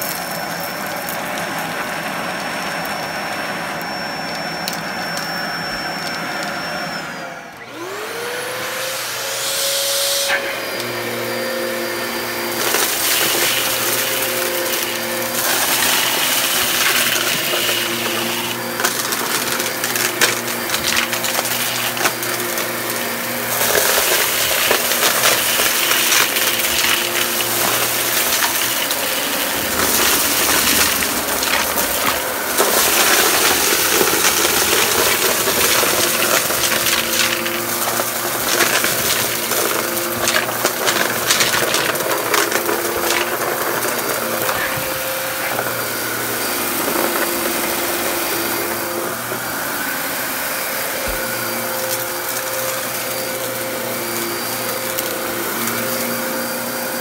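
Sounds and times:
vacuum cleaner motor whine: 0:00.0 - 0:57.0
grit rattling through vacuum: 0:09.0 - 0:57.0.

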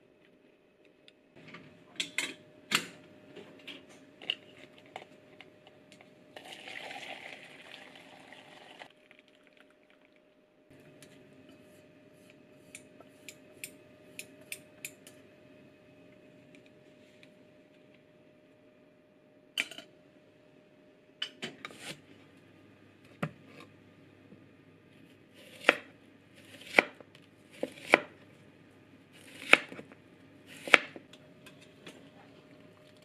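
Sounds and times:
broth pouring into container: 0:06.4 - 0:10.2.

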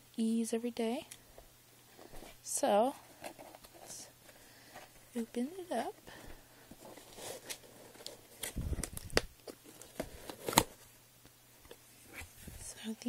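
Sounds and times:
packaging rustling and scraping: 0:03.0 - 0:05.2, 0:06.1 - 0:10.9.

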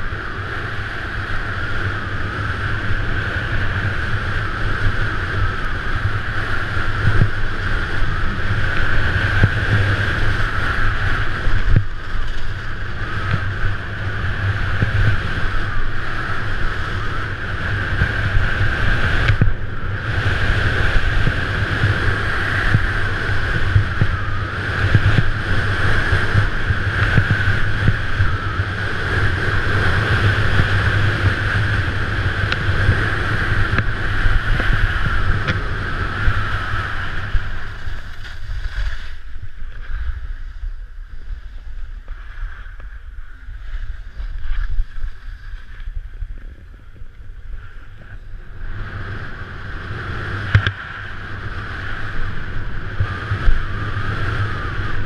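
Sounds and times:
skis sliding on packed snow: 0:00.0 - 0:55.0
wind rushing over microphone: 0:00.0 - 0:55.0.

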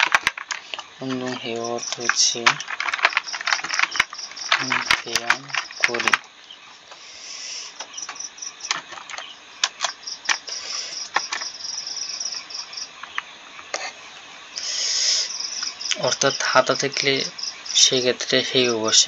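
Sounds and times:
keyboard and mouse clicks: 0:00.0 - 0:06.3, 0:07.8 - 0:11.6
insect chirping: 0:00.0 - 0:19.0.

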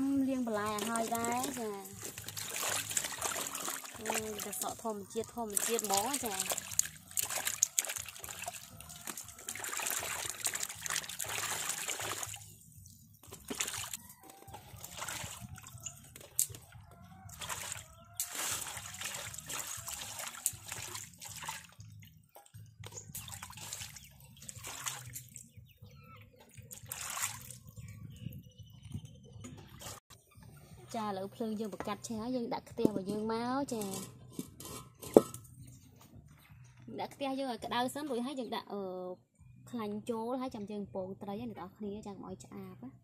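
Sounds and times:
water splashing in a basin: 0:00.5 - 0:25.5, 0:26.5 - 0:27.9.

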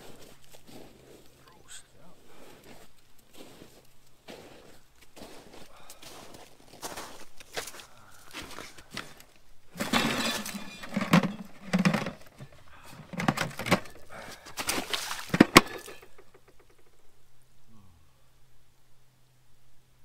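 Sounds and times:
boots crunching in wet snow: 0:00.0 - 0:09.4, 0:14.2 - 0:15.9.

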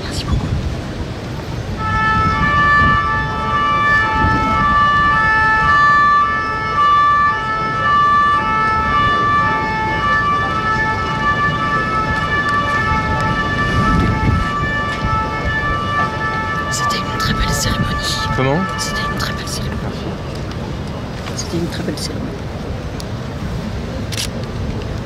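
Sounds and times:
low background noise: 0:00.0 - 0:25.0
two-tone emergency siren: 0:01.7 - 0:20.4.

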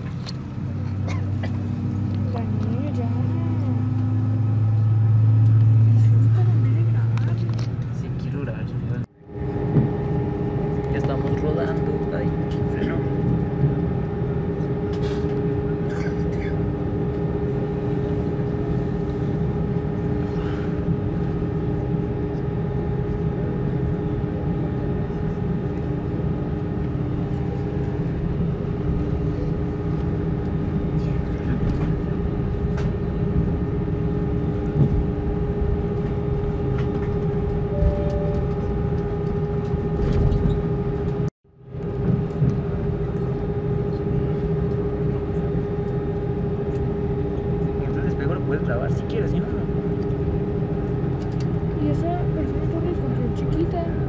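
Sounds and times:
airplane cabin rumble: 0:00.0 - 0:54.0
engine and air system hum: 0:09.1 - 0:23.3, 0:25.3 - 0:41.2.

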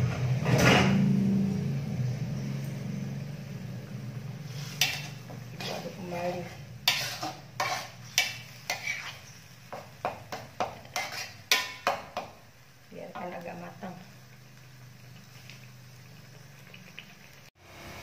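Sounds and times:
metal spatula scraping wok: 0:00.0 - 0:01.3, 0:04.1 - 0:12.3
paste sizzling in oil: 0:02.8 - 0:18.0.

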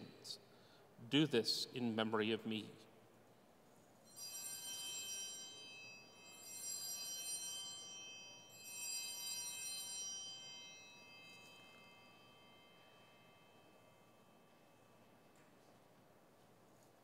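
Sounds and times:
altar bells ringing: 0:04.0 - 0:15.2.

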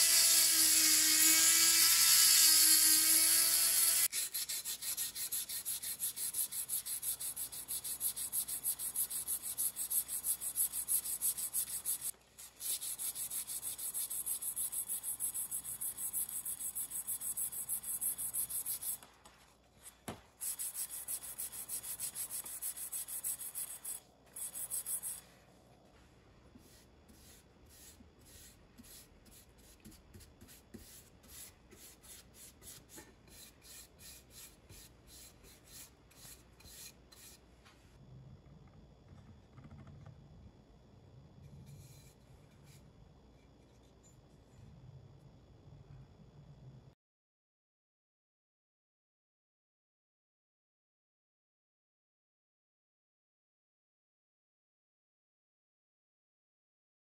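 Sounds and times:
soft brushing strokes: 0:06.6 - 0:33.5.

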